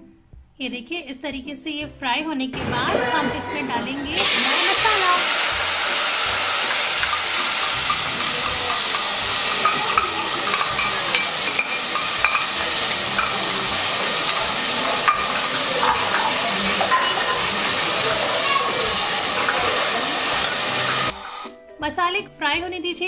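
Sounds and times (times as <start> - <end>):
paste sizzling in hot oil: 4.0 - 21.5
metal spoon ticking against pot: 7.0 - 14.4.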